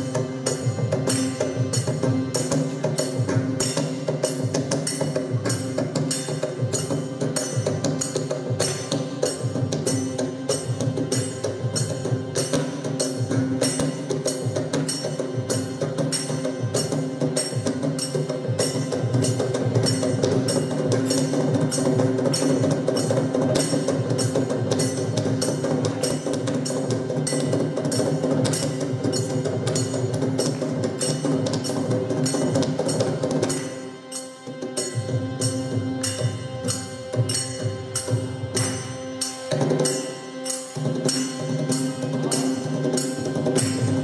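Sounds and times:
hand drum strokes: 0:00.0 - 0:44.0
harmonium: 0:00.0 - 0:44.0.

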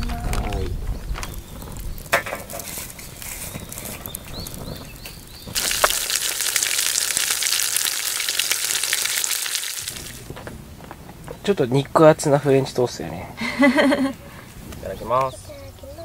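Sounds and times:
loud sizzling in frying pan: 0:01.3 - 0:10.3.

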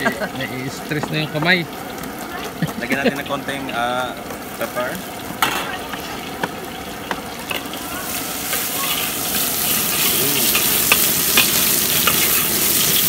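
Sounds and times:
vegetables sizzling in oil: 0:00.0 - 0:13.0
metal ladle clicking on pan: 0:10.6 - 0:13.0.

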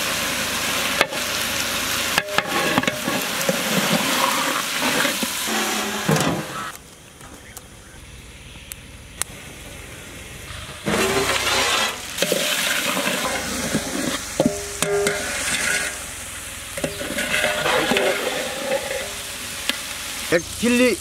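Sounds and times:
chicken sizzling in a pot: 0:00.0 - 0:06.8, 0:08.1 - 0:21.0
metal ladle scraping a pot: 0:02.2 - 0:06.6, 0:10.8 - 0:16.1, 0:16.8 - 0:19.4.

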